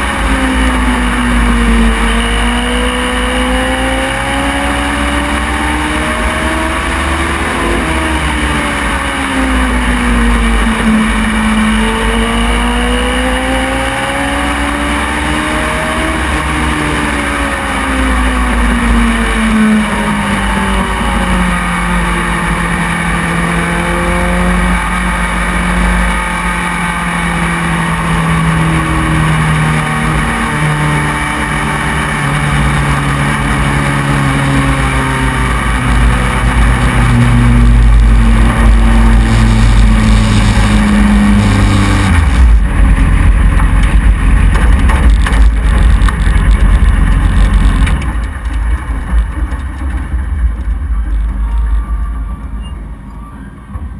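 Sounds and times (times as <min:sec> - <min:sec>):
race car engine: 0:00.0 - 0:53.9.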